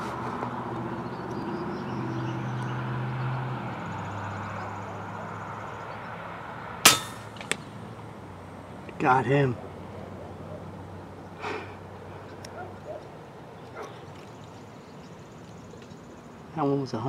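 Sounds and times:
air rifle shot: 0:06.8 - 0:07.7.

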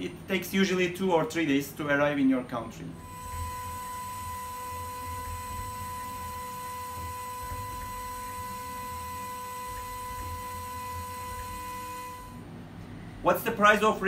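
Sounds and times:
low hum: 0:02.9 - 0:13.3
milling machine spindle whine: 0:03.0 - 0:12.7.

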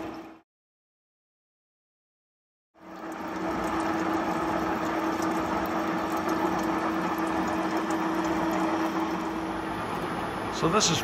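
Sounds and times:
milling machine hum and whine: 0:02.8 - 0:11.0.

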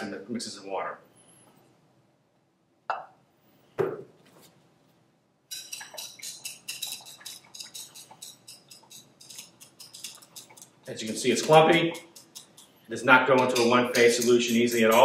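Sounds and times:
metal spatula clinking in glass: 0:05.5 - 0:15.0.

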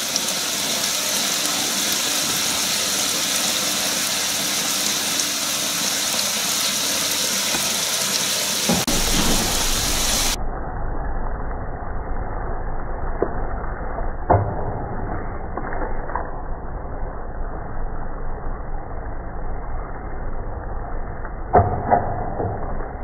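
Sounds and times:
squid sizzling in a frying pan: 0:00.0 - 0:10.4.

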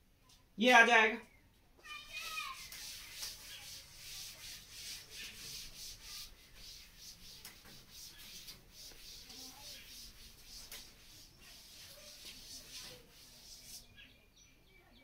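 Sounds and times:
scratchy handwriting strokes: 0:02.4 - 0:13.9.

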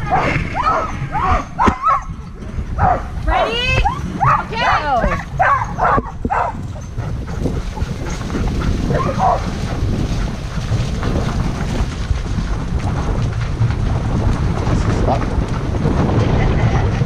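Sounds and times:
rig rolling on gravel: 0:00.0 - 0:17.0
wind buffeting microphone: 0:00.0 - 0:17.0
dog yelp: 0:00.1 - 0:02.2, 0:02.8 - 0:06.9, 0:08.9 - 0:09.5.

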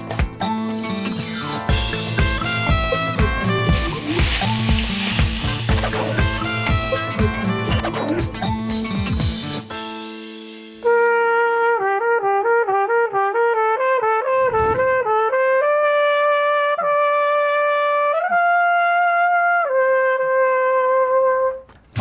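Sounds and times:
solo trumpet playing: 0:02.4 - 0:07.8, 0:10.8 - 0:21.7.

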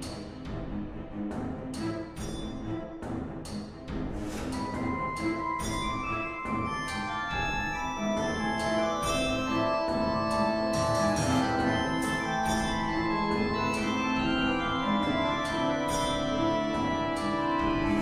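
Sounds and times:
organ-like keyboard music: 0:04.6 - 0:18.0.

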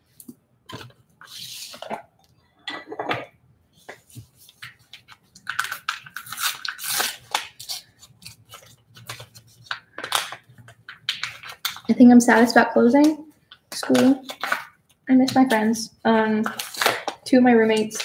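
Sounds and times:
packaging crinkling and rustling: 0:04.2 - 0:12.0, 0:15.3 - 0:18.0.

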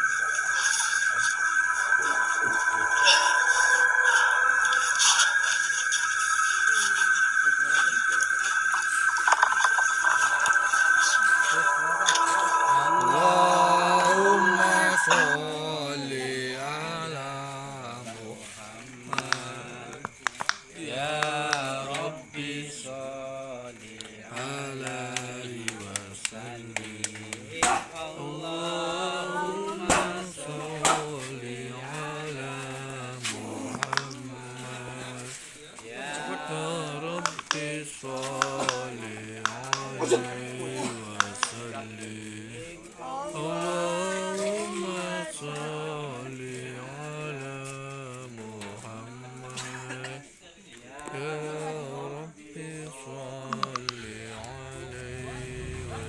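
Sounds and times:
man chanting: 0:11.2 - 0:20.2, 0:20.8 - 0:50.3, 0:50.9 - 0:56.0.

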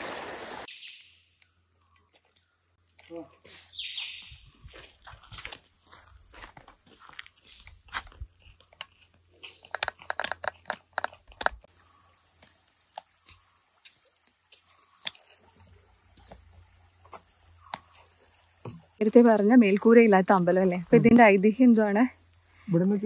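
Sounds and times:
footsteps on dry leaves: 0:03.5 - 0:09.7
stray clicks: 0:09.7 - 0:11.7
cicada drone: 0:09.7 - 0:23.0.

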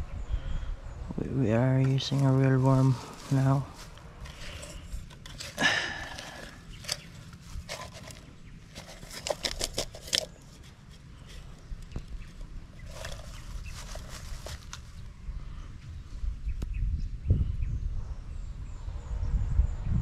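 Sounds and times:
metal lid scrape: 0:06.4 - 0:10.4.

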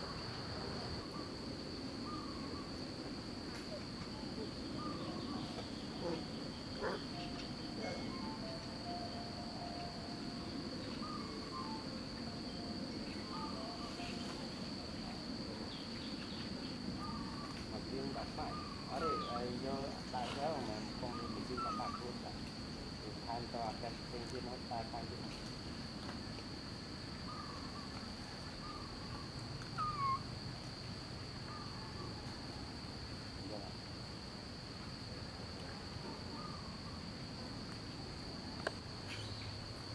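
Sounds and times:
insects droning: 0:00.0 - 0:39.9
animal whistle-like calls: 0:29.8 - 0:30.2.

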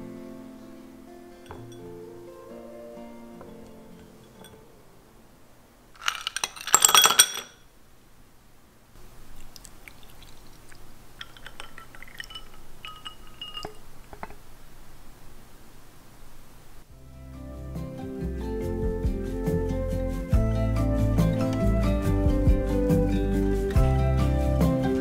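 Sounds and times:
clinking and ringing against glass: 0:01.4 - 0:02.1, 0:03.9 - 0:04.7, 0:06.0 - 0:07.6, 0:11.2 - 0:14.4
ice clinking in glass: 0:04.0 - 0:04.6, 0:06.0 - 0:07.6, 0:11.2 - 0:14.4
drink pouring over ice: 0:06.0 - 0:07.4, 0:09.3 - 0:14.4.

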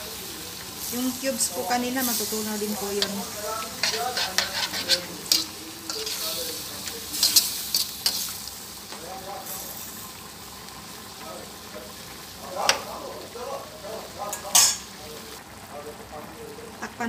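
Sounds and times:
shrimp sizzling in a wok: 0:00.0 - 0:17.0
metal clanking on wok: 0:01.0 - 0:09.0, 0:14.3 - 0:15.0
metal spoon scraping a wok: 0:02.1 - 0:08.4.

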